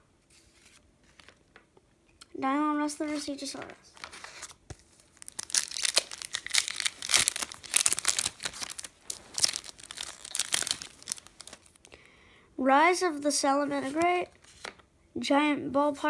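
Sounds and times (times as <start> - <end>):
foil wrapper crinkling and tearing: 4.0 - 12.0.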